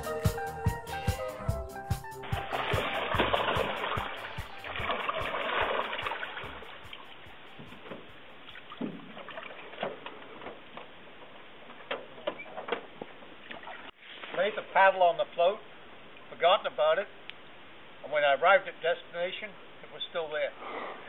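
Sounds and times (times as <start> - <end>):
music track: 0.0 - 8.0
water lapping against floats: 2.3 - 14.8.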